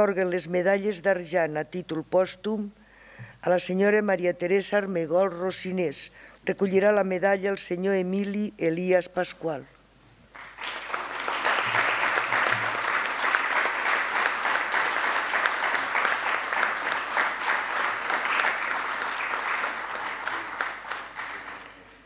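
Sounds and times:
audience applauding: 10.3s - 22.0s.

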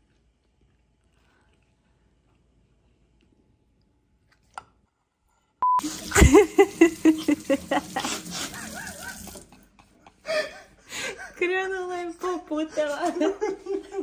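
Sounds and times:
short beep: 5.6s - 5.8s.

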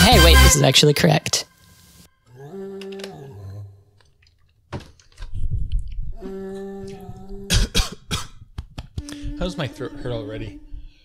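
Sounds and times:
man humming: 2.3s - 3.8s, 6.2s - 7.8s, 8.9s - 10.8s
man coughing: 7.5s - 8.5s.

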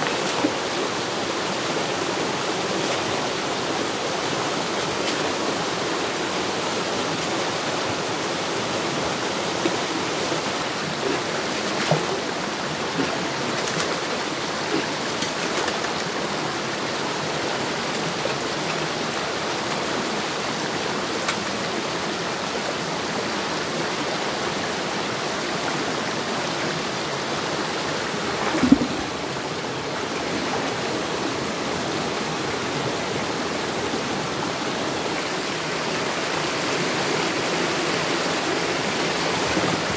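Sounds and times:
stream rushing over rocks: 0.0s - 39.9s
loud thump or splash: 28.3s - 29.2s.

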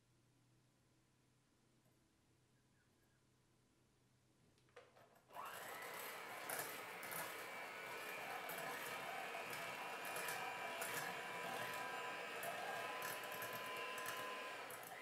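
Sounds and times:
electric hand mixer running: 5.3s - 15.0s.

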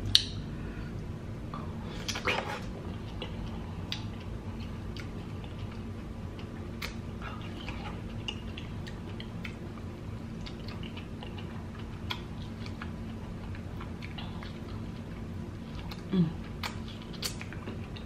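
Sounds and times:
steady low hum: 0.0s - 18.0s
wet mouth clicks and chewing: 2.0s - 9.6s, 15.8s - 18.0s.

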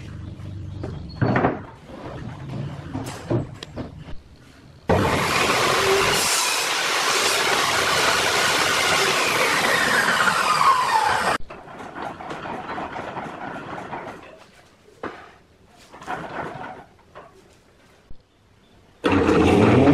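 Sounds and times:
table saw whining cut: 4.9s - 11.4s.

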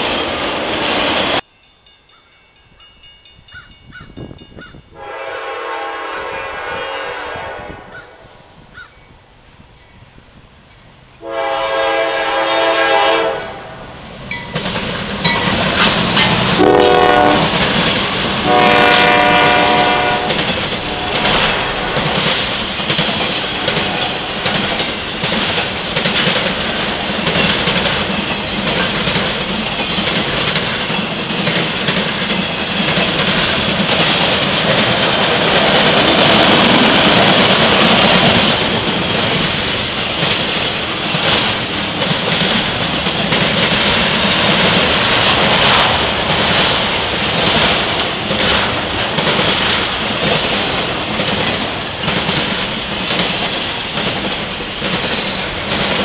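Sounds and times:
train rumble and wheel clatter: 0.0s - 56.0s
locomotive horn blasts: 4.9s - 8.3s, 11.2s - 13.8s, 16.5s - 17.6s, 18.4s - 22.2s.

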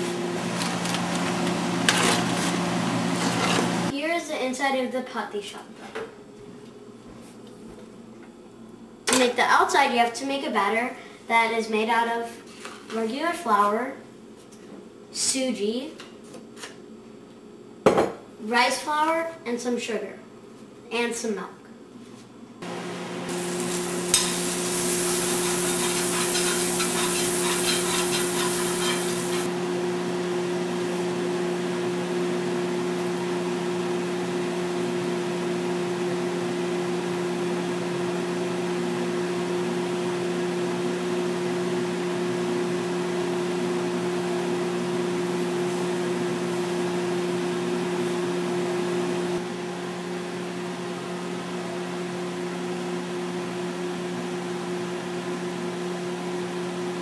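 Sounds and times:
range hood fan humming: 0.0s - 57.0s
crackling sizzle: 22.7s - 29.5s.

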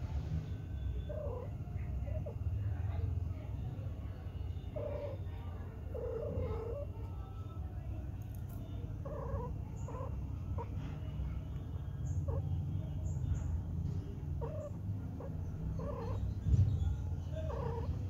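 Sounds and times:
steady low hum: 0.0s - 18.0s
cat crying: 1.0s - 2.4s, 4.6s - 7.0s, 9.0s - 10.8s, 14.3s - 16.3s, 17.3s - 18.0s.

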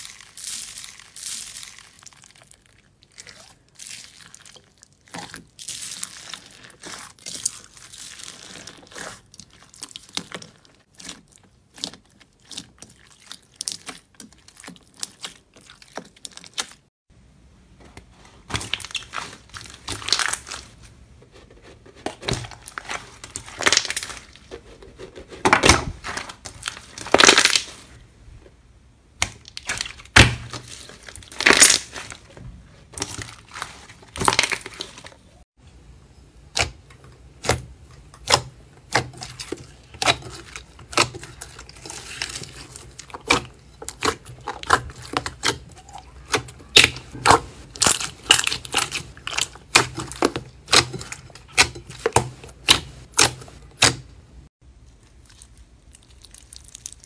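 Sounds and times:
sticky slime crackling: 0.0s - 16.9s, 18.4s - 20.8s, 22.1s - 28.0s, 29.2s - 35.4s, 36.4s - 54.2s, 54.8s - 57.0s.

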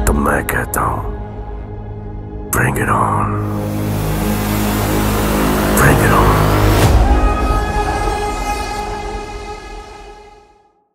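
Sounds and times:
held musical chord: 3.1s - 9.0s.

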